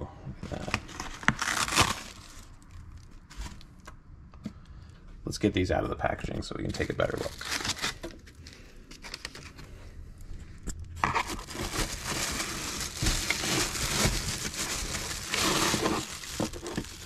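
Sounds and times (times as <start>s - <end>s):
plastic wrapping crinkling: 0.5s - 3.9s, 6.7s - 9.6s, 11.0s - 17.0s.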